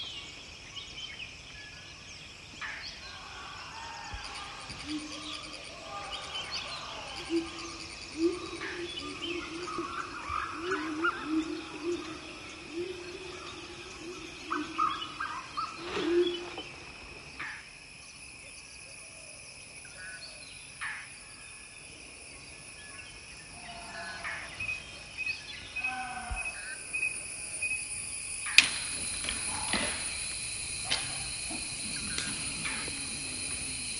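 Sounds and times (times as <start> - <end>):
bird calls: 0.0 - 17.7, 22.8 - 33.9
insect drone: 0.0 - 33.9
sharp snap: 28.5 - 30.0.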